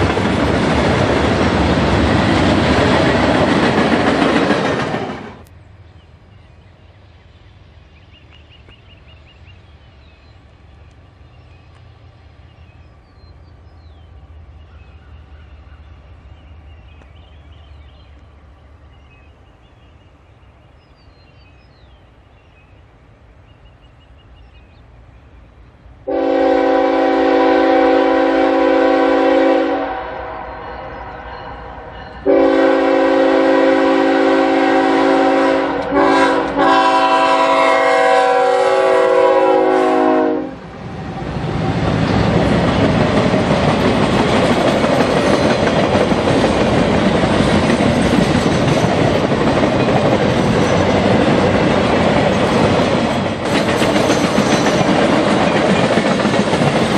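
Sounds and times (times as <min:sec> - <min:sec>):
faint train rumble: 0:00.0 - 0:56.9
train wheels on rails: 0:00.0 - 0:56.9
locomotive air horn: 0:26.1 - 0:40.6.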